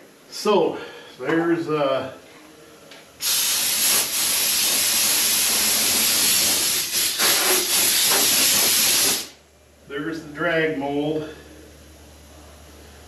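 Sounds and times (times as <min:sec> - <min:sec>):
compressed air hissing: 0:03.2 - 0:09.4.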